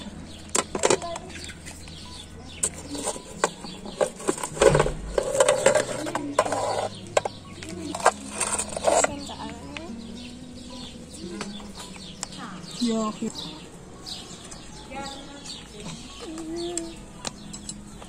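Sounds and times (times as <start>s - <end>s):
lid thudding down: 4.0s - 5.8s
iron hook scraping metal lid: 7.9s - 9.2s.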